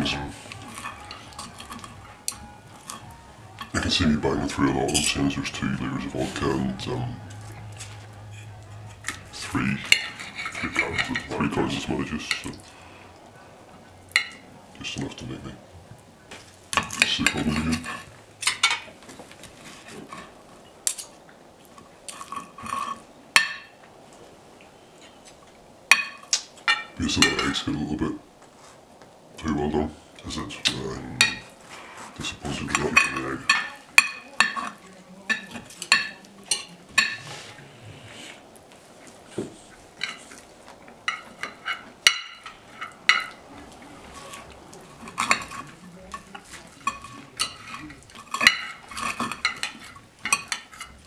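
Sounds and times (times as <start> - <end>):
cutlery scraping ceramic plate: 6.2 - 12.6, 16.8 - 18.9, 22.1 - 23.7, 32.6 - 37.6, 41.1 - 43.4, 44.2 - 51.0.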